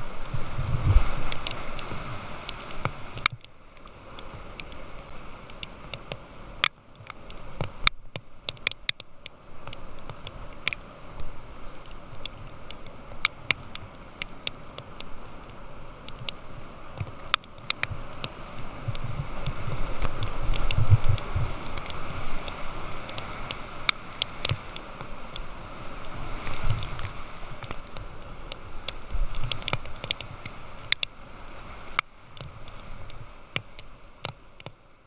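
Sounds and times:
water clicks on camera: 1.2s - 3.6s, 5.4s - 10.8s, 17.0s - 31.2s
whitewater rapids rushing: 9.5s - 34.6s.

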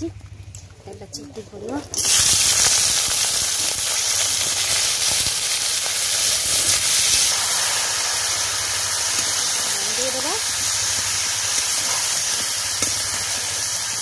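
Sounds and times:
food frying in hot oil: 2.0s - 14.0s.

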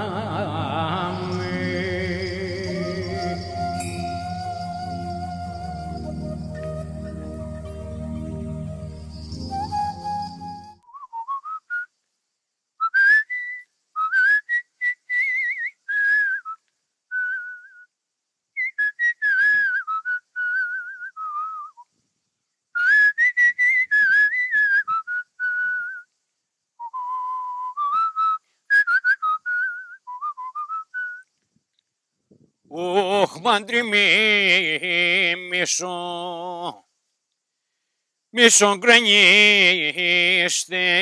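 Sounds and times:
man whistling a tune: 0.0s - 12.0s, 12.8s - 17.9s, 18.6s - 21.9s, 22.8s - 26.1s, 26.8s - 31.3s.

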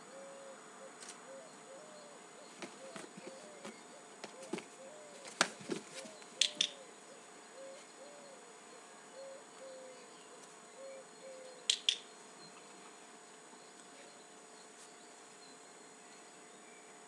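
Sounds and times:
dog-training clicker clicking: 6.4s - 6.8s, 11.7s - 12.0s.

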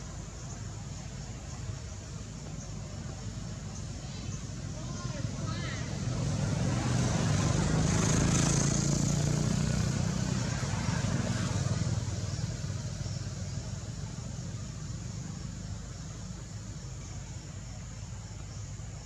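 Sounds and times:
steady background noise: 0.0s - 19.0s.

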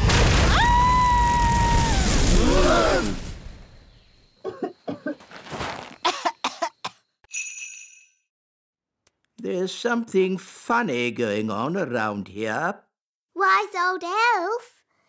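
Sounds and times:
rushing avalanche of flour: 0.0s - 3.6s
cartoon fairy coughing: 4.4s - 5.2s, 6.0s - 7.0s.

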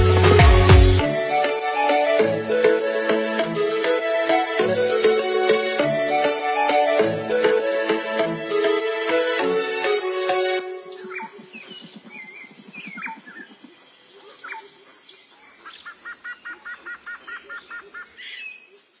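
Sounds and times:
music: 0.0s - 11.2s
birds chirping and calling: 10.4s - 18.8s.

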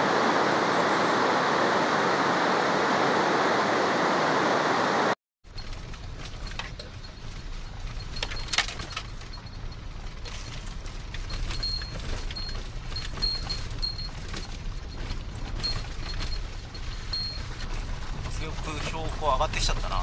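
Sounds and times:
wind rumble on microphone: 0.0s - 20.0s
high ringing tone pulses: 11.4s - 17.6s.

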